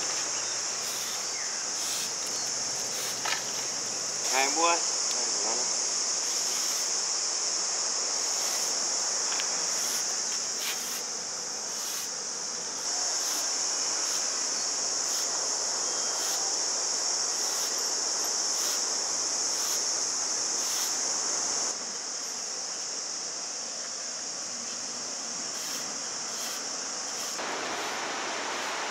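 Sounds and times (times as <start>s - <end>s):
constant rushing hiss: 0.0s - 28.9s
insects chirring: 0.0s - 28.9s.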